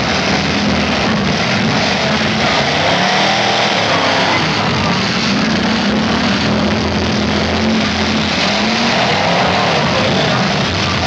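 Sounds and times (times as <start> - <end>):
car engines revving hard: 0.0 - 11.0.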